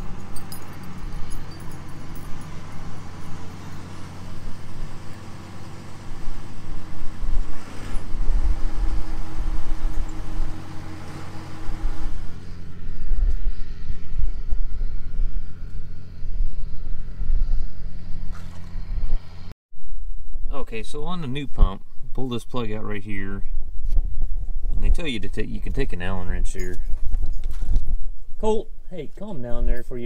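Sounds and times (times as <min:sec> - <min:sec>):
low rumble: 0:11.8 - 0:22.2.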